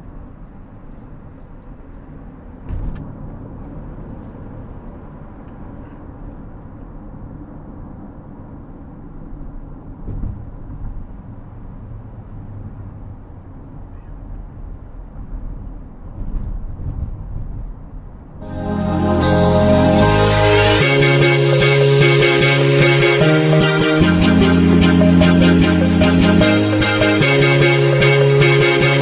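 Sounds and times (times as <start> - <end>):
road and tyre noise in car: 0.0 - 18.4.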